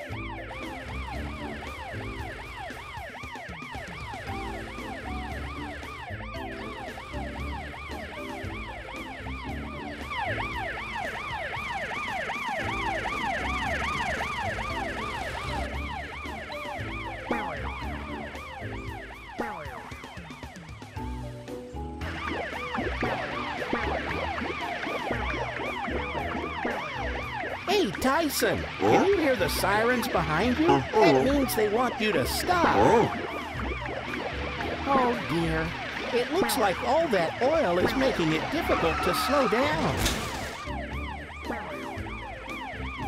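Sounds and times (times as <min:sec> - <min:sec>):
cartoon siren wailing: 0:00.0 - 0:20.1, 0:25.8 - 0:40.0.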